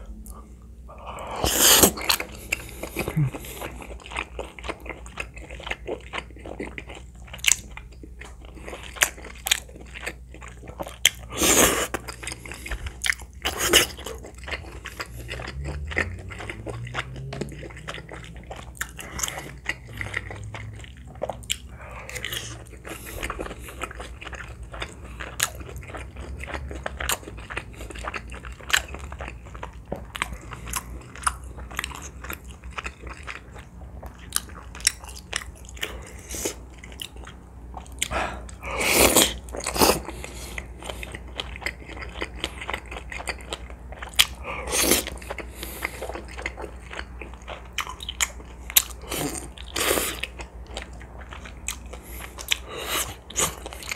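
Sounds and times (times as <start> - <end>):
slurping: 1.0 - 4.0, 38.0 - 41.2
chewing: 1.3 - 53.9.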